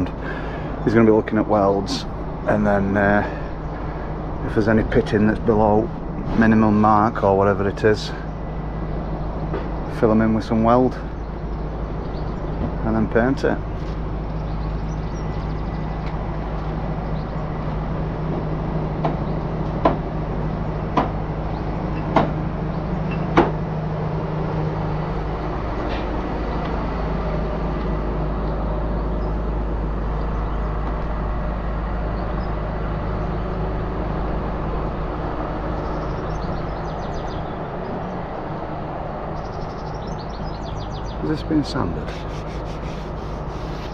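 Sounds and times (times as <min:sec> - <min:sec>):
low engine drone: 0:00.0 - 0:43.9
sharp knocks: 0:18.3 - 0:20.1, 0:20.9 - 0:21.2, 0:21.9 - 0:22.4, 0:23.1 - 0:23.7.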